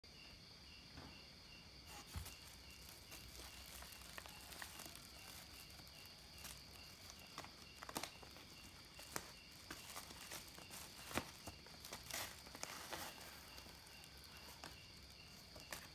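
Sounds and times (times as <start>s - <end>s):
plastic bag crackling: 1.9s - 15.9s.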